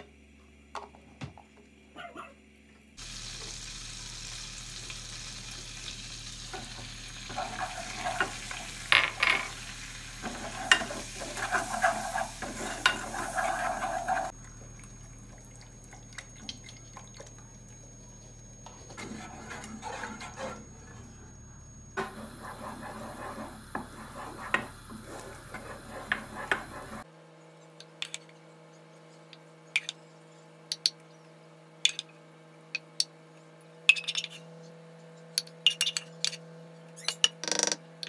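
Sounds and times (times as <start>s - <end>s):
roux sizzling in saucepan: 3.0s - 27.1s
wooden spoon scraping pan: 6.5s - 14.4s, 18.7s - 21.3s, 22.0s - 27.0s.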